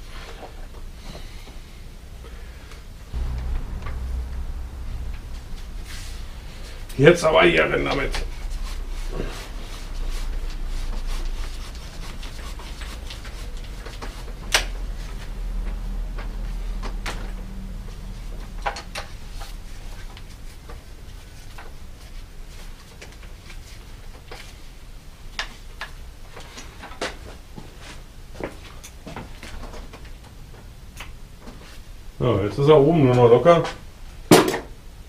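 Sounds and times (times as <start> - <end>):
low steady hum: 3.1 - 22.4.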